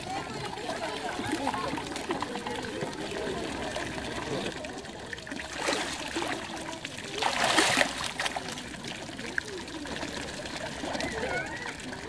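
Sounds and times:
water sloshing and trickling: 0.0s - 12.0s
animal splashing in water: 5.3s - 8.9s.

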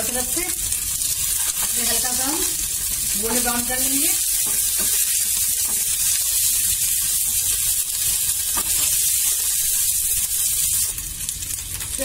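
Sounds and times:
chicken wings sizzling in oil: 0.0s - 12.0s
wooden spatula turning food: 0.6s - 9.9s.

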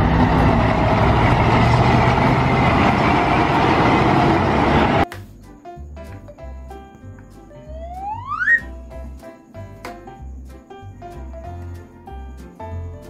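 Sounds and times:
truck diesel engine running: 0.0s - 5.0s
quiet music: 5.0s - 13.0s.

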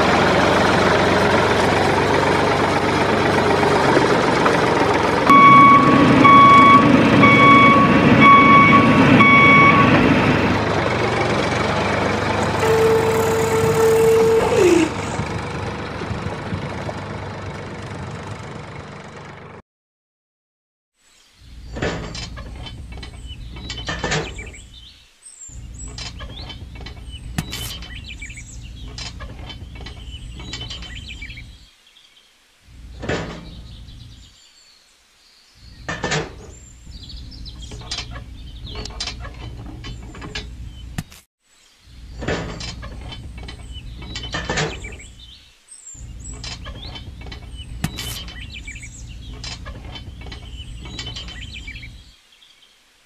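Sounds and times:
birds chirping: 12.4s - 15.3s, 42.8s - 52.8s.

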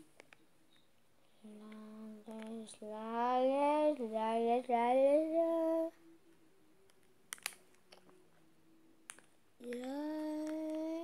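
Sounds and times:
child singing long note: 9.6s - 11.0s.

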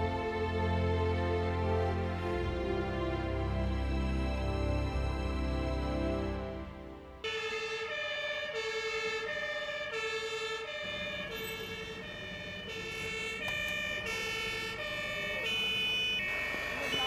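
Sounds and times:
two-tone fire engine siren: 7.2s - 17.0s.

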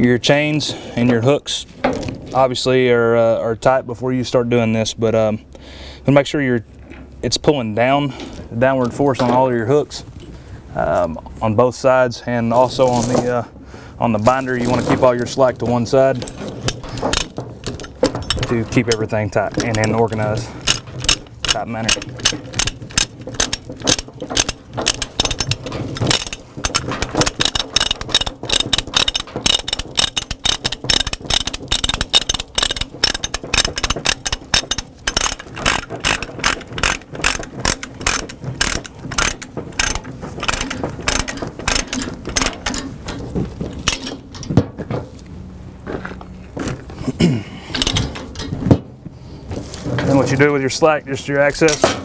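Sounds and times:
ratchet clicks: 19.6s - 42.8s.

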